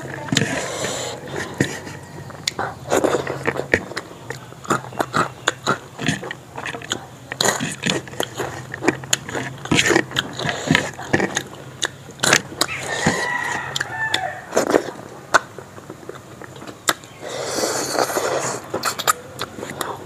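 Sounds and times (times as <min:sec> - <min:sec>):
wet eating clicks and smacks: 0:00.0 - 0:20.0
rooster crowing: 0:00.9 - 0:02.4, 0:12.7 - 0:14.6.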